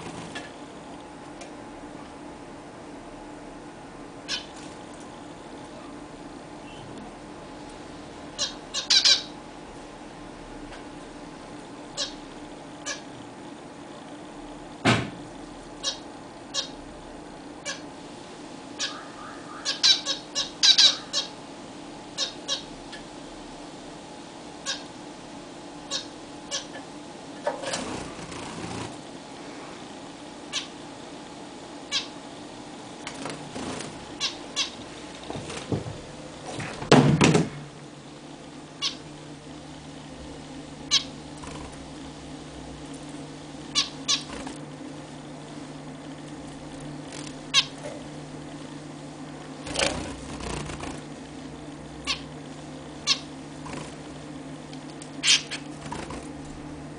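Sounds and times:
zebra finches beeping: 0:04.2 - 0:04.6, 0:08.3 - 0:09.4, 0:11.9 - 0:13.1, 0:15.8 - 0:16.8, 0:17.6 - 0:17.9, 0:18.7 - 0:21.4, 0:22.1 - 0:23.1, 0:24.6 - 0:25.0, 0:25.8 - 0:26.8, 0:30.5 - 0:30.8, 0:31.9 - 0:32.2, 0:33.6 - 0:34.8, 0:38.8 - 0:39.1, 0:40.8 - 0:41.8, 0:43.6 - 0:44.6, 0:47.2 - 0:47.8, 0:52.0 - 0:53.9, 0:55.0 - 0:56.2.

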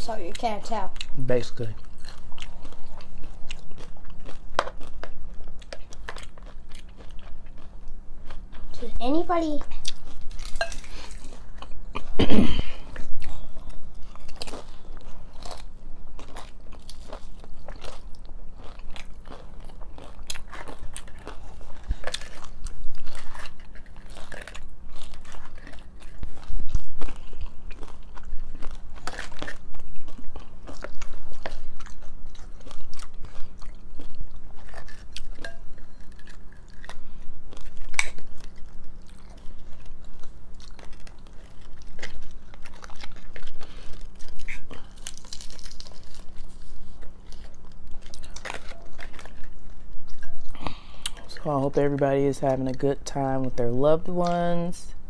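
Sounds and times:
crunching of fried taco shells: 0:00.0 - 0:08.8, 0:09.7 - 0:54.8.

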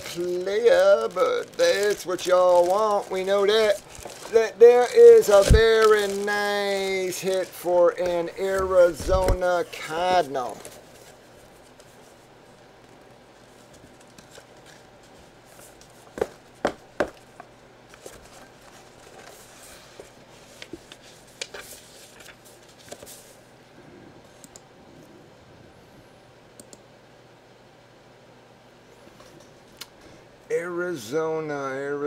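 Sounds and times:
paper rustling with clicks: 0:00.0 - 0:23.4.

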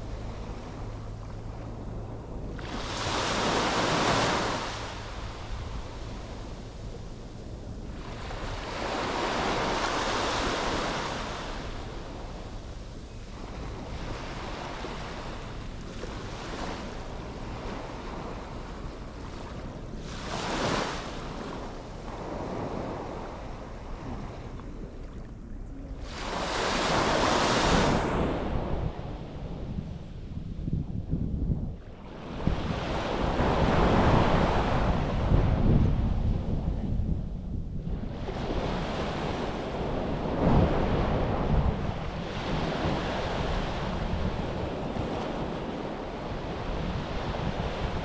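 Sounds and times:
sea waves washing onto beach: 0:00.0 - 0:12.8
wind rumble on microphone: 0:00.0 - 0:48.0.

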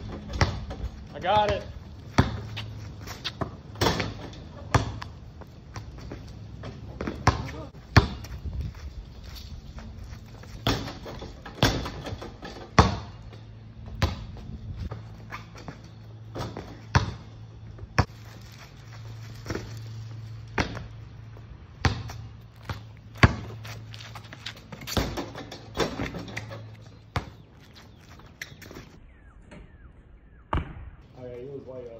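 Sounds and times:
basketball hoop being hit: 0:00.0 - 0:02.5, 0:03.4 - 0:05.1, 0:06.6 - 0:08.3, 0:10.6 - 0:13.2, 0:16.3 - 0:17.3, 0:24.8 - 0:27.3, 0:30.5 - 0:31.0
basketball bouncing on asphalt: 0:00.0 - 0:29.8, 0:30.5 - 0:31.0.

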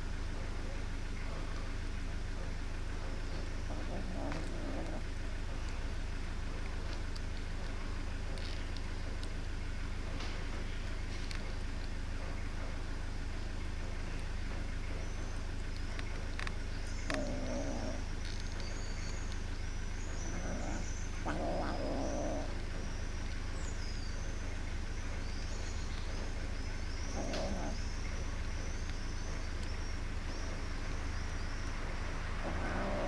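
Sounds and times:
kitten growling: 0:03.6 - 0:05.2, 0:17.0 - 0:18.4, 0:20.1 - 0:22.7, 0:27.1 - 0:27.9, 0:32.4 - 0:33.0.

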